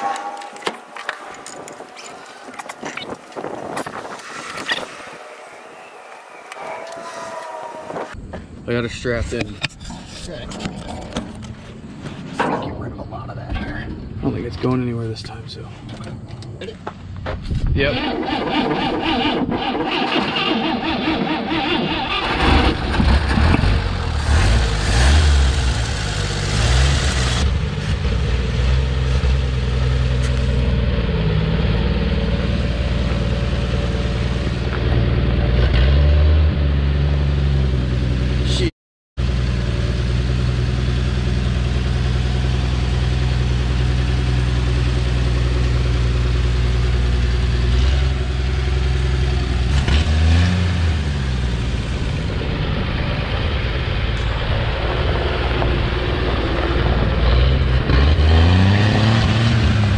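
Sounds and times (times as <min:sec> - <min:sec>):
engine cranking and revving: 0:17.8 - 0:32.3, 0:40.8 - 0:59.9.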